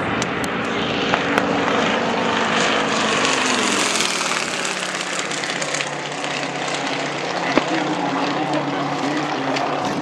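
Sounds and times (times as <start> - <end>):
propeller aircraft flying overhead: 0.0 - 10.0.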